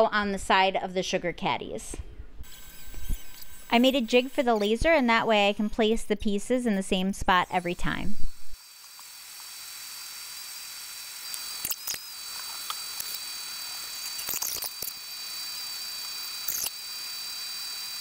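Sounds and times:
motors zipping and clicking: 2.4 - 6.1, 6.7 - 18.0.

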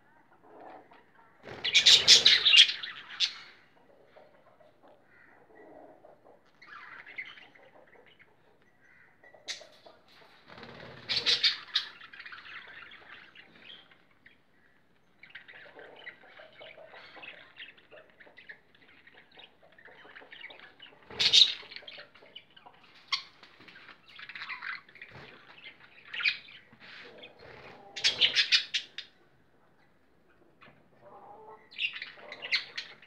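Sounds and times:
budgerigars chirping: 1.5 - 3.9, 10.8 - 14.0, 15.2 - 23.4, 24.2 - 29.1, 31.6 - 33.0.

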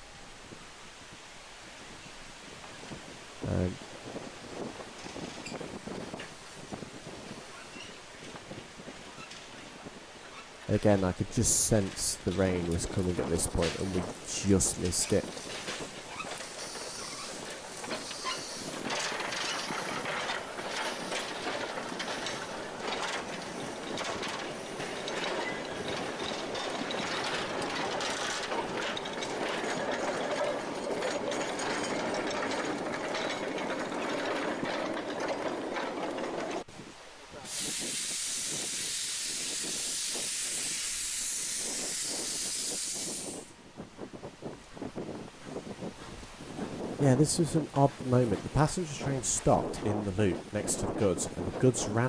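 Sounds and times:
train wheels clattering over rails: 3.8 - 52.0
steam hissing: 11.4 - 22.9, 37.4 - 43.6.

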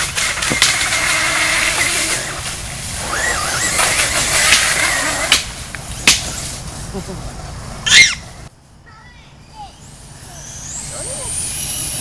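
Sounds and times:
electric motor whining: 0.0 - 2.4, 3.0 - 5.3.

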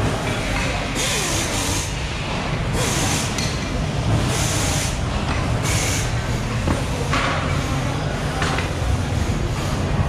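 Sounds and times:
compressed air hisses: 5.6 - 6.2.

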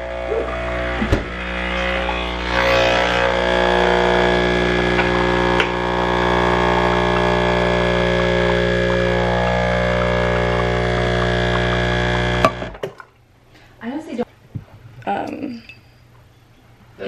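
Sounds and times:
espresso machine pump humming: 0.0 - 12.7.

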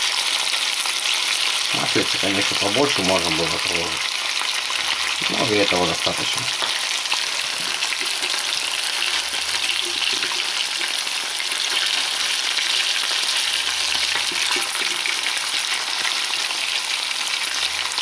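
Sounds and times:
fish frying in hot oil: 0.0 - 18.0.

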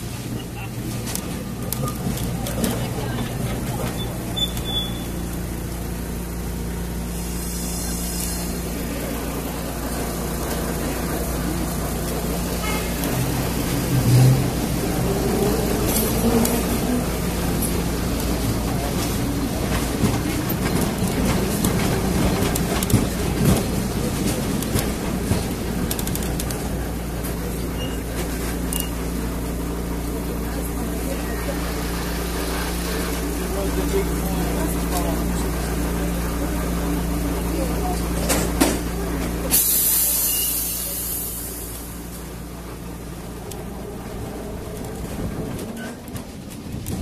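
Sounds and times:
street background noise: 0.0 - 47.0
tram wheels and motor rumbling: 0.0 - 47.0.

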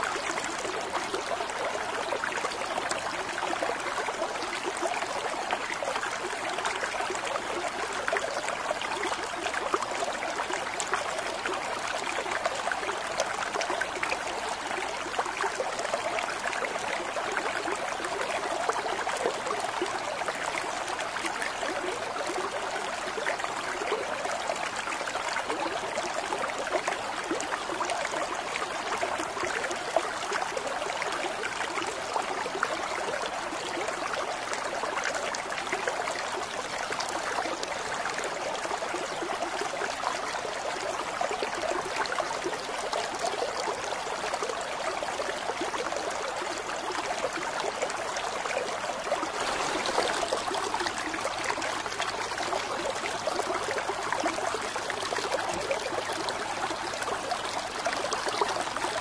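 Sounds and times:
water trickling from a spout: 49.1 - 59.0.

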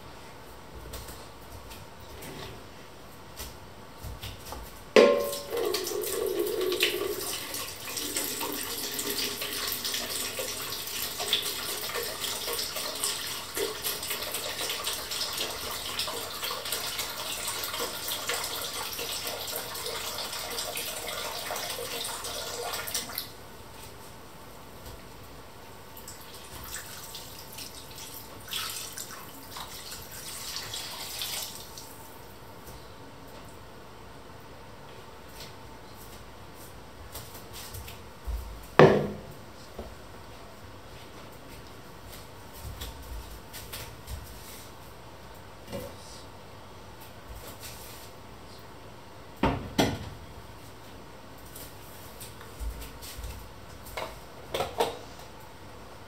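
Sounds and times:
liquid pouring into pot: 5.2 - 23.0
kitchen tap running: 5.2 - 23.3, 26.0 - 32.0.

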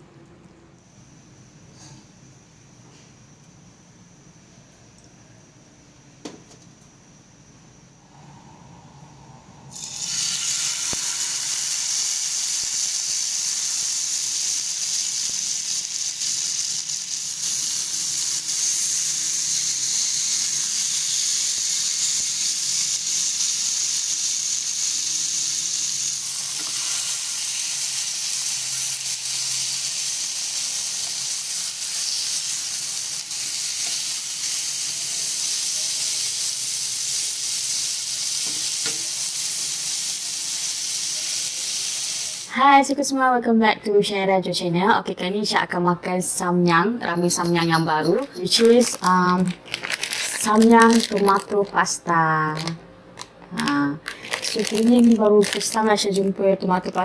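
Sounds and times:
meat sizzling in hot oil: 9.7 - 42.6.

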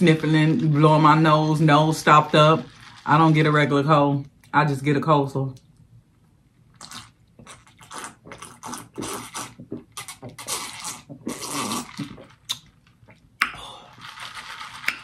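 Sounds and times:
person gulping a drink: 6.6 - 15.0.

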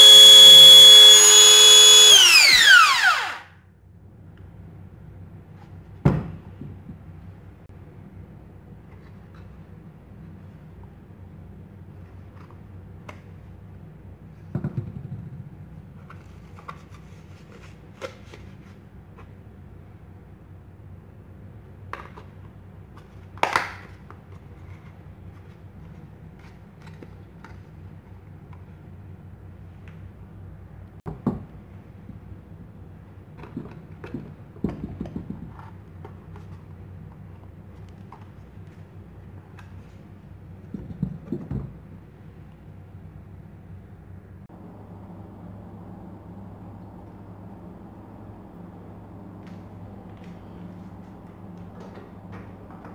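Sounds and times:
steady low hum: 35.6 - 52.9.

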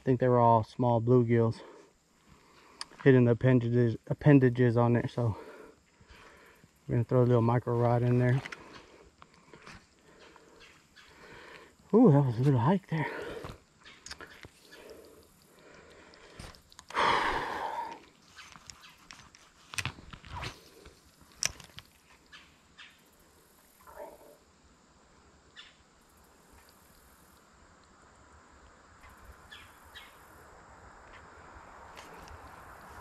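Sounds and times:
faint hiss: 0.0 - 33.0
fishing rod handling rustle: 18.2 - 22.2.

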